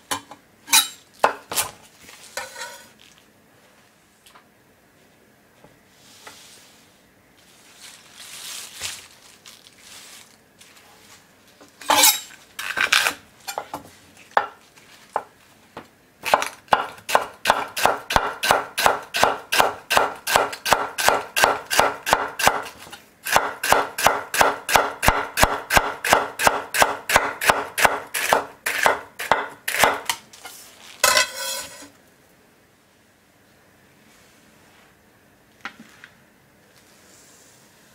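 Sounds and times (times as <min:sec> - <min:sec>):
knife chopping on wooden board: 0:16.2 - 0:30.2.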